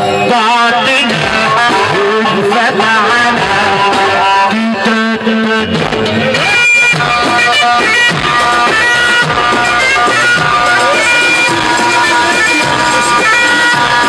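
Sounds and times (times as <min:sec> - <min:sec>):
hand and frame drums: 0:01.0 - 0:14.0
electronic keyboard melody: 0:04.4 - 0:14.0.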